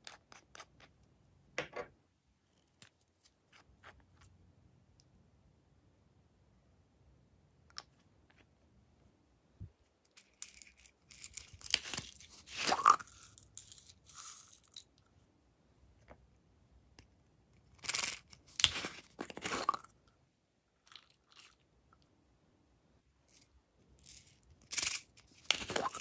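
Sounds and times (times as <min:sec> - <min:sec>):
plastic packaging crinkling: 0:11.1 - 0:13.2, 0:25.4 - 0:26.0.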